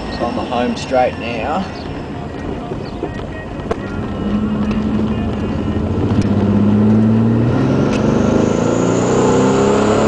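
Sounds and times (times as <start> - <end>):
car engine revving: 3.8 - 10.0.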